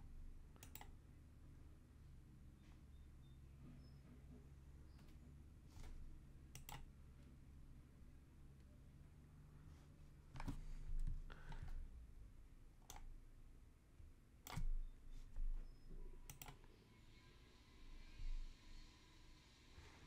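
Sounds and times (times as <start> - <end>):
mouse and keyboard clicks: 0.6 - 0.9, 5.8 - 6.9, 14.4 - 14.8, 16.3 - 16.7.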